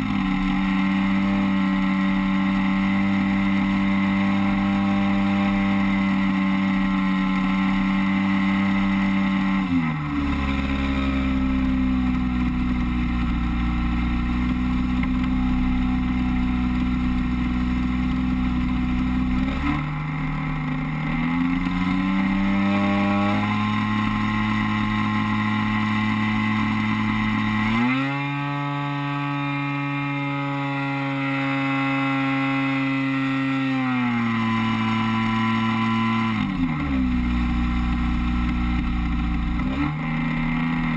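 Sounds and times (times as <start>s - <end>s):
model plane engine and propeller: 0.0s - 40.9s.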